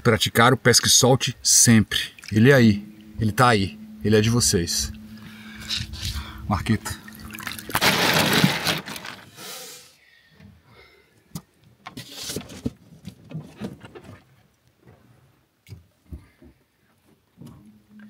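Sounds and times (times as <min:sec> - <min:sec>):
water splashing: 0:01.6 - 0:03.2, 0:04.8 - 0:09.2.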